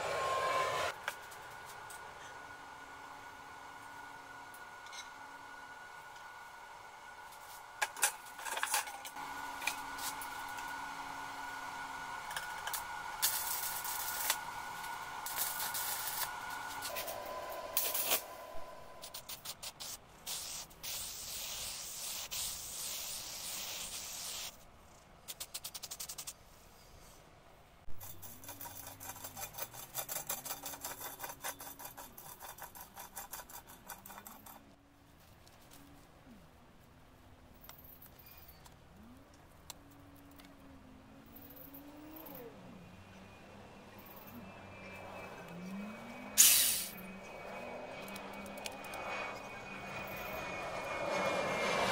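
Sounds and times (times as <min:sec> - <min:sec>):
steady whine: 0:00.0 - 0:19.3, 0:39.0 - 0:51.9
aerosol spray can hissing: 0:19.0 - 0:24.6, 0:46.4 - 0:47.0.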